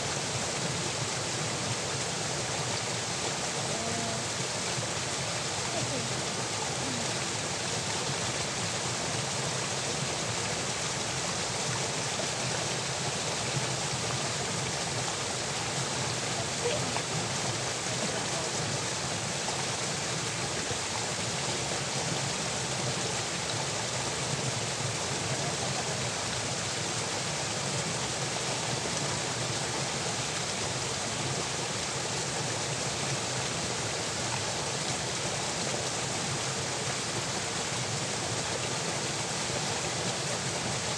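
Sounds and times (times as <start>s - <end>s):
water pouring from a culvert: 0.0s - 40.9s.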